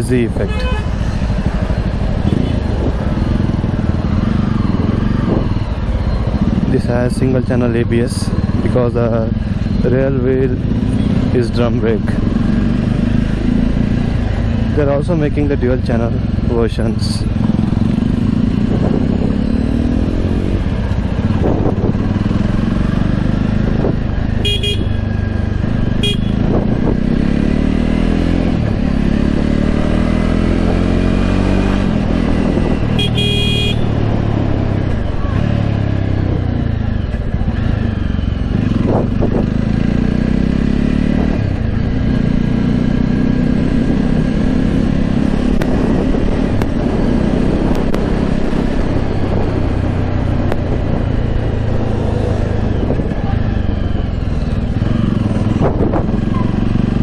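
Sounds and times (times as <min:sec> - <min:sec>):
motorcycle engine accelerating: 0:00.0 - 0:57.0
vehicle horn honking: 0:00.4 - 0:01.0, 0:02.2 - 0:02.6, 0:24.4 - 0:25.0, 0:26.0 - 0:26.5, 0:33.0 - 0:34.0.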